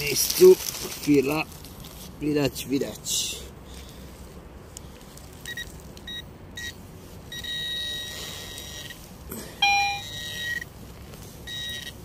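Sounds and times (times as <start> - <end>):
metal detector beeping: 5.5 - 9.0, 9.6 - 10.7, 11.4 - 12.0.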